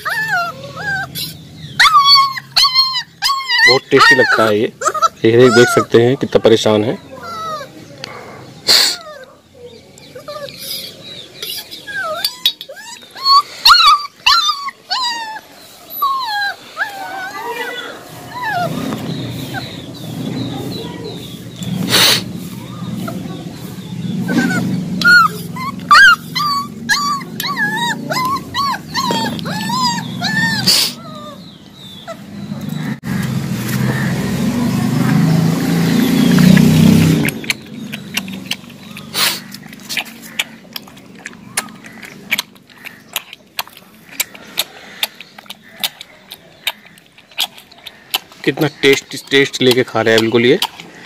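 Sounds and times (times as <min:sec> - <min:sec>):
puppy whimpering: 0:00.0 - 0:21.4, 0:22.7 - 0:33.0
low rumbling: 0:17.9 - 0:42.4
puppy lapping from steel bowl: 0:36.5 - 0:51.0.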